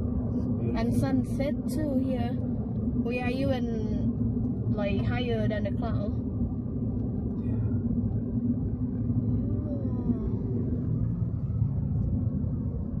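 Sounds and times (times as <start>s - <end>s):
car engine and tyre rumble: 0.0s - 13.0s.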